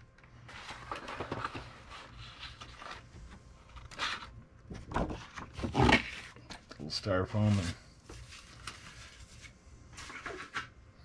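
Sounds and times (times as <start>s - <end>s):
cardboard rubbing and scraping: 5.0s - 6.4s.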